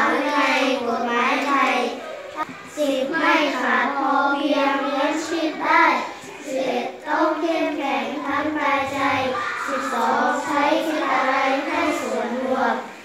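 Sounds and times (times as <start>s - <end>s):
children chanting text aloud: 0.0s - 13.0s.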